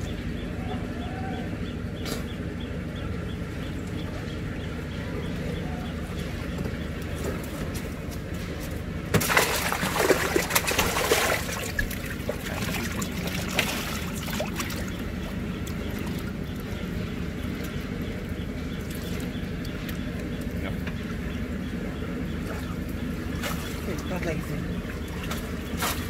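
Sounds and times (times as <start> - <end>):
steady low hum: 0.0 - 26.0
pond water splashing: 5.8 - 26.0.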